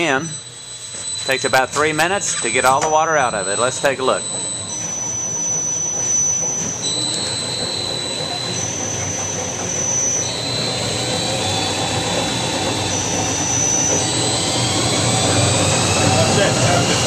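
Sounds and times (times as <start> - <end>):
rug centrifuge whirring and whining: 0.0 - 17.0.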